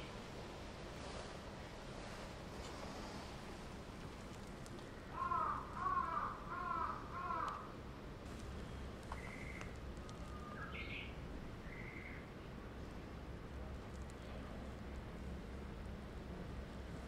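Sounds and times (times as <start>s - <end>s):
crow cawing: 5.1s - 7.7s.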